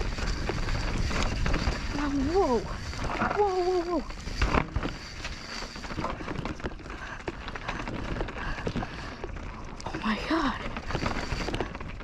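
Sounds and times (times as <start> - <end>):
wind buffeting microphone: 0.0 - 6.7
bike rattling and clicking: 0.0 - 12.0
tyres running over dirt and rock: 0.0 - 12.0.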